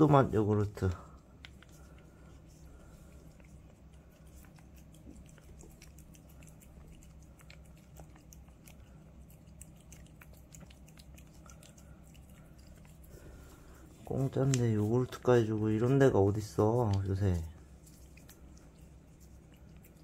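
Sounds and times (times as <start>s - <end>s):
cat licking wet clicks: 0.1s - 20.0s.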